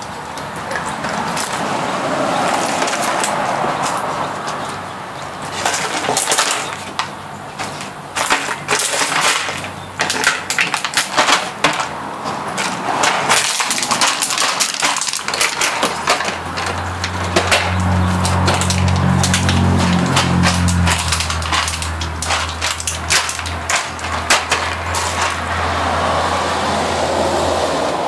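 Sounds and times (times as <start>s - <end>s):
plastic crinkling and crunching: 5.4s - 25.9s
dog chewing plastic bottle: 12.6s - 25.6s.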